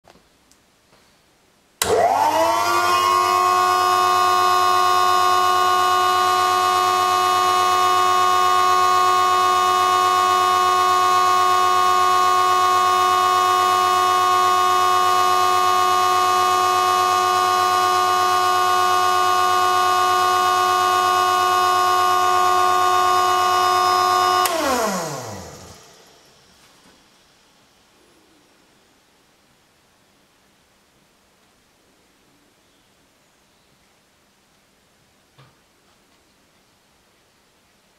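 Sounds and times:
vacuum pump whining: 0:01.8 - 0:27.2.

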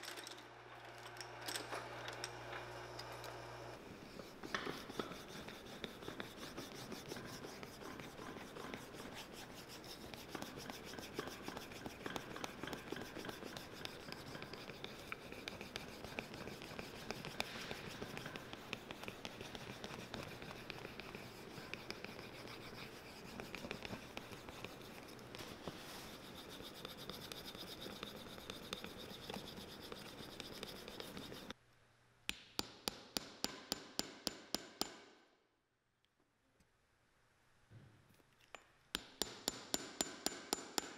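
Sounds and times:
wood rubbing on leather: 0:04.0 - 0:31.6.

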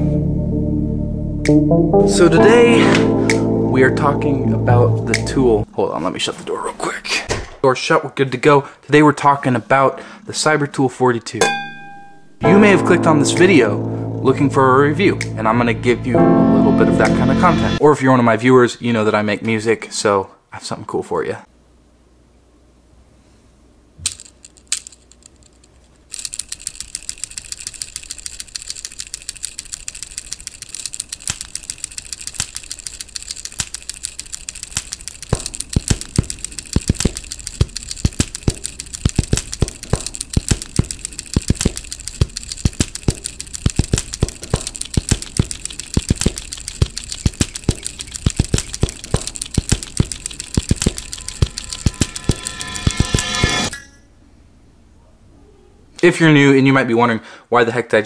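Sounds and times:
pocket knife tools clicking: 0:26.1 - 0:53.8.

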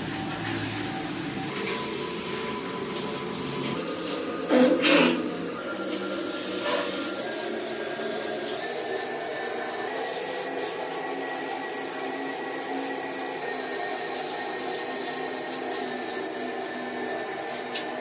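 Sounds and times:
steady hum: 0:00.0 - 0:12.3
shower spray on hair and tile: 0:05.9 - 0:07.5.

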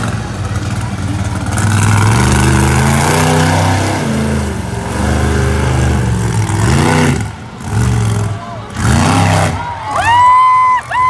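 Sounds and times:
truck engine revving hard: 0:00.0 - 0:11.0.

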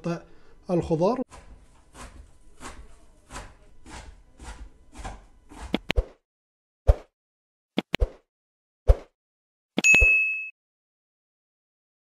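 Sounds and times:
bell ding: 0:09.8 - 0:10.6.

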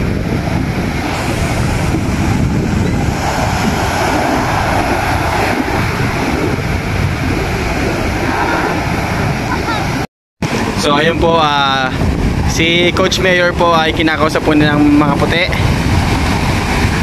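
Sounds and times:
ocean surf breaking: 0:00.0 - 0:17.0
wind buffeting microphone: 0:00.0 - 0:17.0.

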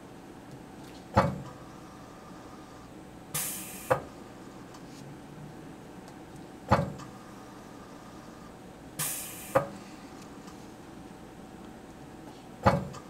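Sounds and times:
short hiss of released air: 0:03.4 - 0:04.1, 0:09.0 - 0:09.8.

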